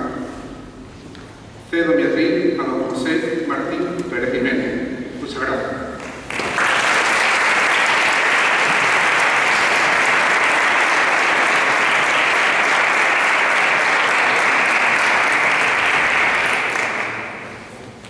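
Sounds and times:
audience applauding: 0:06.0 - 0:17.7.

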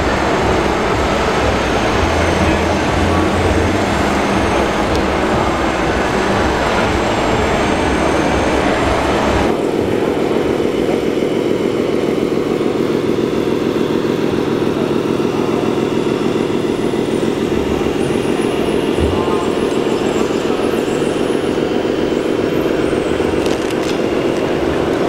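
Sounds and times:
machinery noise: 0:00.0 - 0:25.0
toy truck diesel engine sound: 0:00.0 - 0:25.0.

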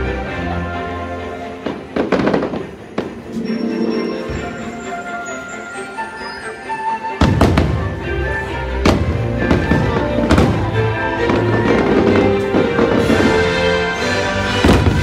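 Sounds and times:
fireworks bangs: 0:01.6 - 0:03.5, 0:07.2 - 0:15.0
loud show music: 0:03.4 - 0:15.0.

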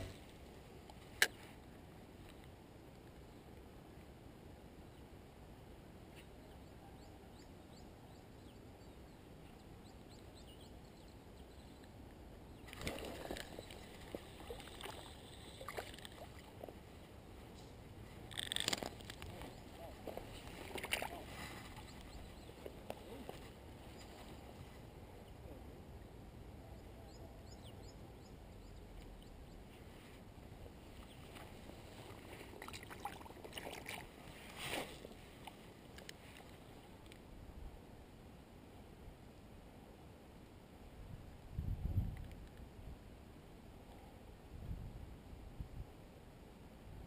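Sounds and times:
fishing reel clicks and rustles: 0:18.2 - 0:19.5.

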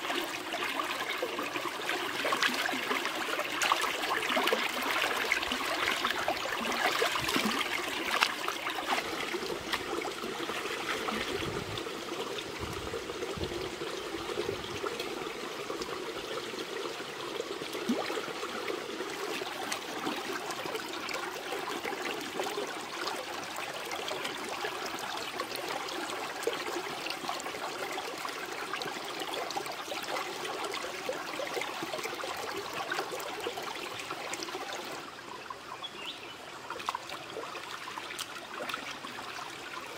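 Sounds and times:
water splashing: 0:00.0 - 0:15.9
stream water flowing: 0:00.0 - 0:39.9.

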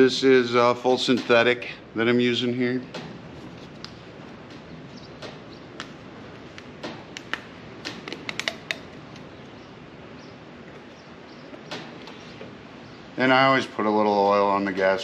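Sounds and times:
faint background hiss: 0:00.0 - 0:15.0
oil filter handling clicks: 0:05.8 - 0:09.3.

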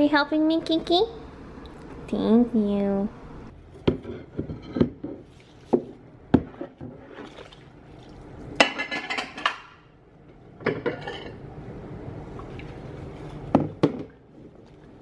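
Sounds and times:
dishes knocking and clinking in sink: 0:03.8 - 0:07.3, 0:08.6 - 0:09.8, 0:10.6 - 0:11.4, 0:13.5 - 0:14.2.

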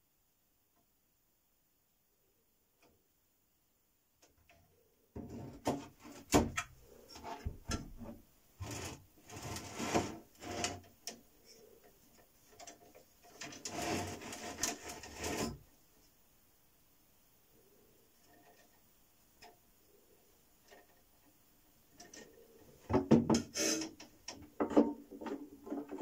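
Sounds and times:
knocks and scraping of handled lid: 0:22.0 - 0:26.0.

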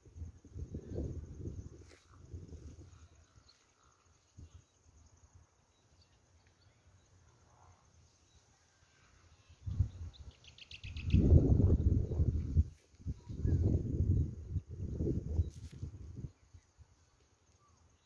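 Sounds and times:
wind buffeting microphone: 0:00.0 - 0:03.2, 0:09.6 - 0:16.4
faint bird chirps: 0:00.6 - 0:18.0.

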